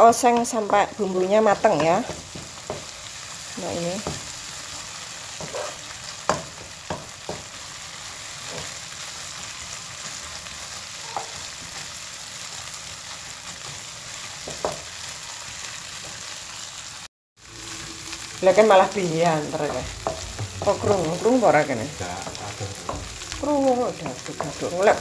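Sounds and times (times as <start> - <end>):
spice paste sizzling in a wok: 0.0 - 25.0
spatula knocking and scraping pan: 0.2 - 3.2, 4.0 - 4.4, 5.3 - 7.6, 19.5 - 25.0.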